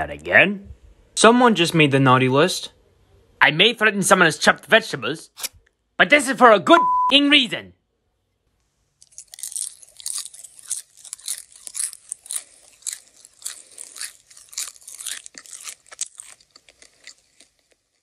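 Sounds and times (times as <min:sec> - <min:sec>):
person munching popcorn: 0:08.8 - 0:18.0.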